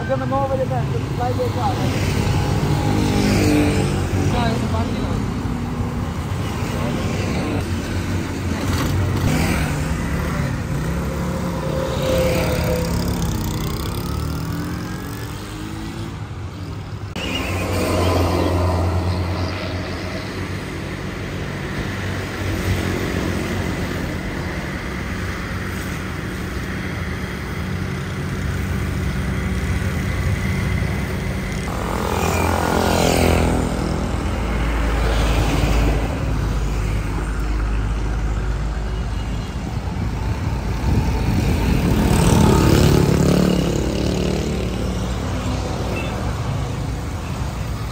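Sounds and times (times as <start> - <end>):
road traffic passing: 0.0 - 47.9
motorcycle passing: 1.4 - 7.9, 8.5 - 21.1, 30.6 - 37.0, 40.2 - 47.9.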